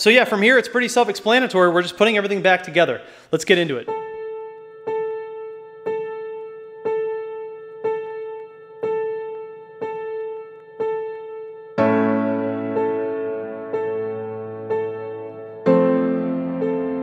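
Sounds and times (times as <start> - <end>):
repeated piano note: 3.8 - 17.0.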